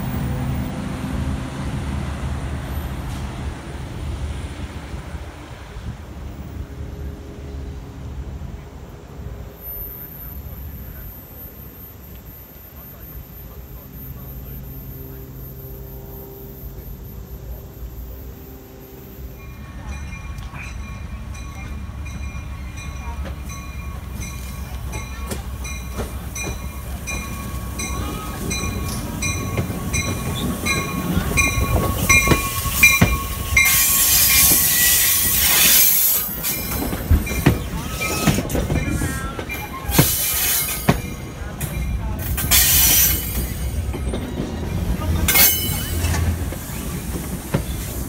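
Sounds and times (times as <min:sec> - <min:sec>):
distant train humming: 0:00.0 - 0:48.0
wheels rumbling on rail: 0:00.0 - 0:48.0
brakes hissing and squealing: 0:09.1 - 0:48.0
train bell ringing: 0:09.6 - 0:47.9.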